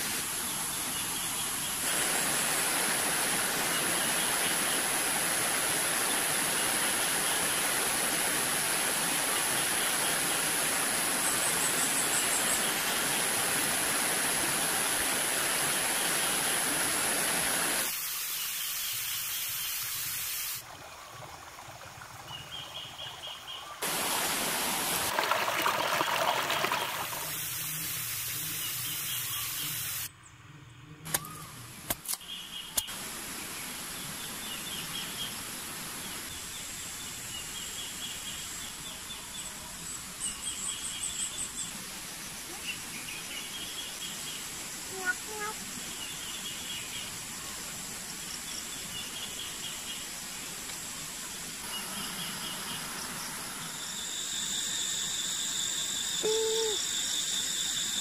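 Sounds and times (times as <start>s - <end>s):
rushing stream water: 0.0s - 18.0s, 20.6s - 30.0s.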